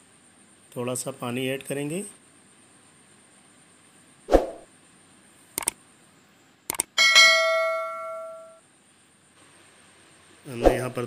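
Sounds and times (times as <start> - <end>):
mouse clicks: 5.6 - 5.8, 6.7 - 6.9
bright bell chime: 7.0 - 8.6.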